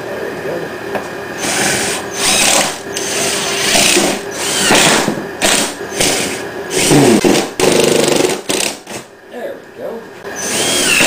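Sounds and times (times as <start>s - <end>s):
cordless drill driving screws: 1.4s - 6.9s, 10.4s - 11.0s.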